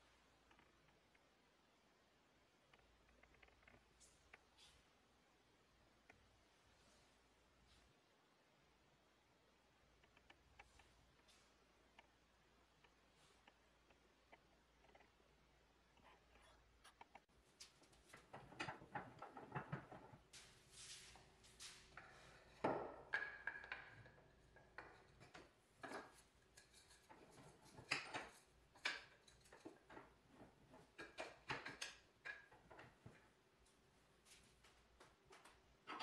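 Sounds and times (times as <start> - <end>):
wood and metal knocks and scrapes: 17.9 - 33.3.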